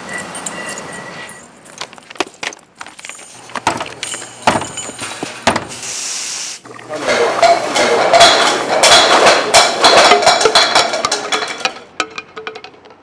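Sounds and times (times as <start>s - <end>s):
small stones clattering: 1.7s - 5.4s.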